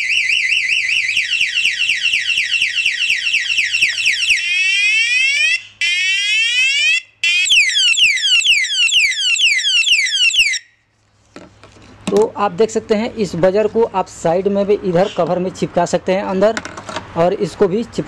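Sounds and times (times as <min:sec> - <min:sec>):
motorcycle alarm siren: 0:00.0 - 0:10.8.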